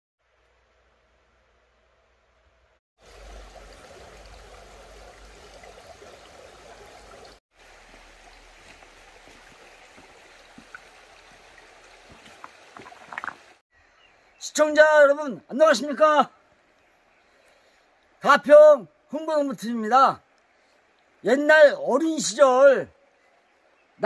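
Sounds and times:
stream water flowing over rocks: 3.0 - 13.6.

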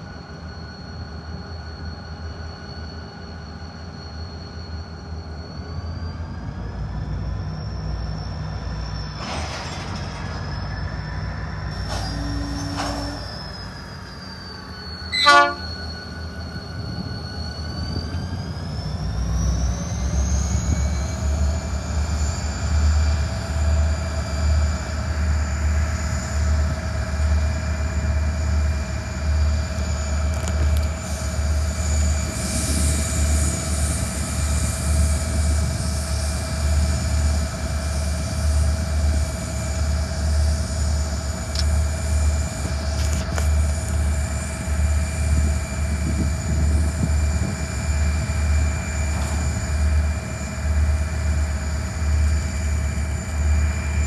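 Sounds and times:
distant locomotive engine whine: 0.0 - 54.0
wind buffeting microphone: 42.4 - 49.6.

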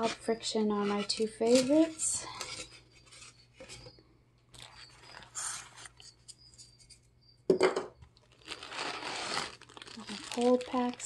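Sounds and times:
handling noise: 3.0 - 11.0
plastic and tissue paper rustling: 4.5 - 6.2, 8.2 - 11.0.

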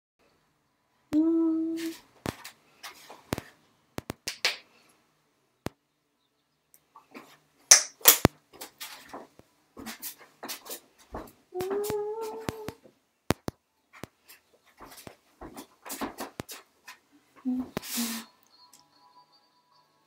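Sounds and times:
person humming: 1.1 - 2.0, 11.5 - 12.8, 17.4 - 18.3.

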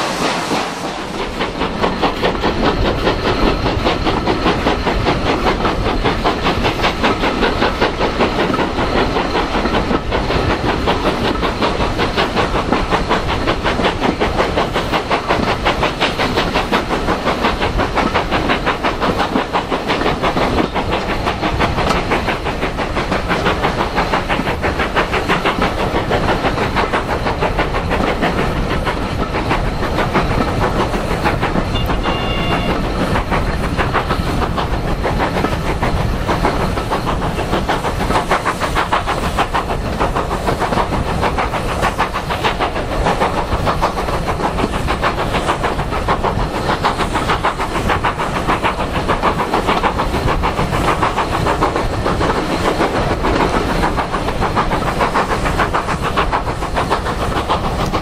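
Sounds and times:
steam locomotive chuffing: 0.0 - 58.0
train wheels clattering over rails: 0.0 - 58.0.

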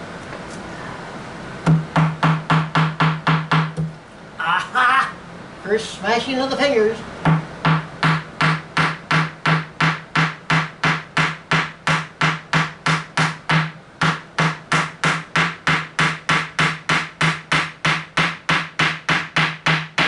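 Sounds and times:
small hammer striking: 1.7 - 3.9, 7.3 - 20.0.

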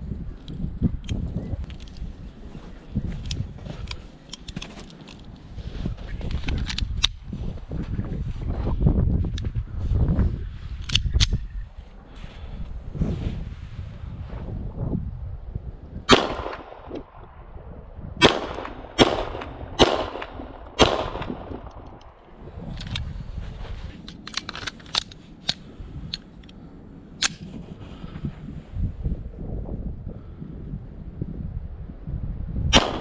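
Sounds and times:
wind rumble on microphone: 0.0 - 33.0
metallic clicks of magazine swap: 10.8 - 11.4, 24.0 - 26.6, 27.2 - 27.5
pistol shots: 16.1 - 17.0, 18.2 - 21.8, 32.8 - 33.0.

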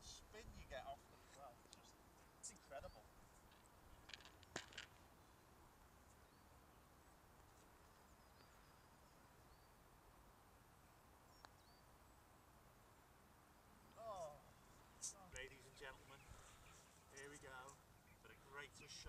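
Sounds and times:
faint high bird chirps: 8.0 - 9.8, 10.8 - 12.0.

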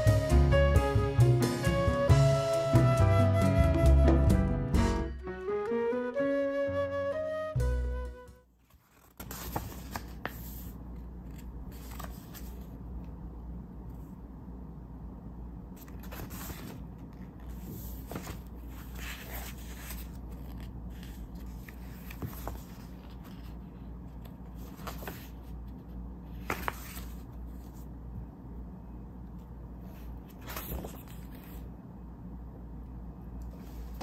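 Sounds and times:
book pages turning: 8.6 - 12.8, 15.8 - 28.0, 29.8 - 31.7, 33.4 - 34.0
steady low hum: 9.3 - 34.0.

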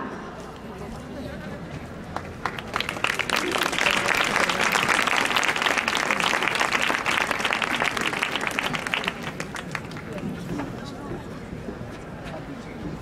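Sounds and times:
crowd applauding: 2.1 - 10.4.

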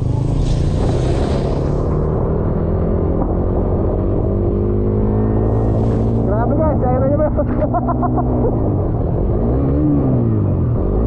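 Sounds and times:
rushing hiss: 0.1 - 2.2.

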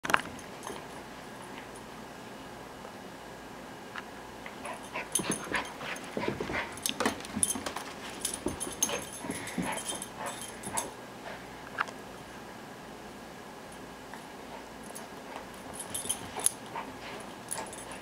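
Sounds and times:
puppy paws on floor: 4.5 - 12.0.

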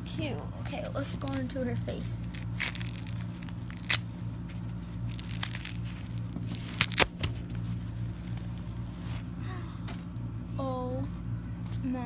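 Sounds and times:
low hum: 0.0 - 12.0
papery wrapping rustling and crackling: 1.0 - 9.4.

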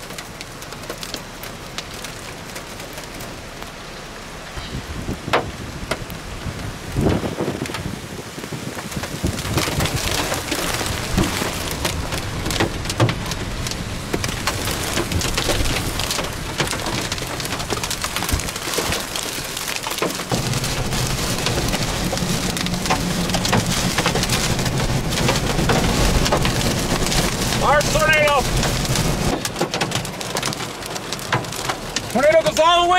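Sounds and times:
rain and hail on vehicle roof: 0.0 - 32.9
low rumble: 9.2 - 29.4.

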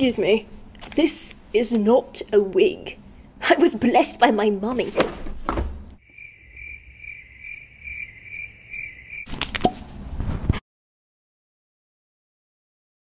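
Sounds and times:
crickets chirping: 6.0 - 9.3
scratchy rustling noise: 9.8 - 10.6.

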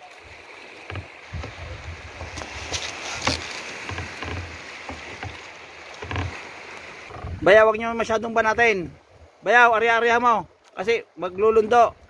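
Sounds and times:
water lapping around boat: 0.0 - 12.0
water splashes: 0.0 - 12.0
low knocks on wooden boat: 0.8 - 6.5.

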